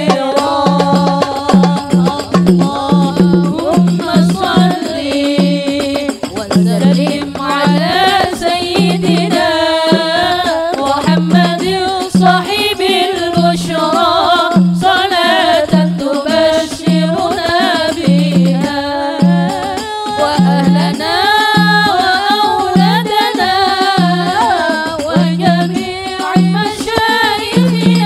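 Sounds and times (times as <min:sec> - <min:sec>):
drum beat: 0:00.0 - 0:28.0
woman singing devotional song: 0:00.0 - 0:28.0.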